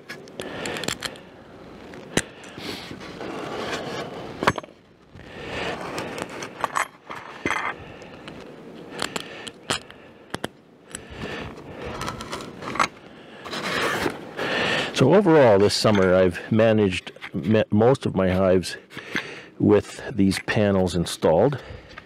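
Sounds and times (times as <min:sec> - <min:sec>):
screws and washers clicking: 0:00.2 - 0:01.2.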